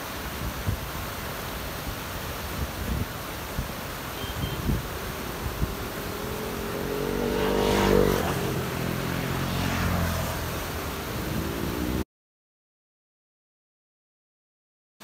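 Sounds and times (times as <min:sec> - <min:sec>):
motor vehicle passing by: 0:04.4 - 0:12.0.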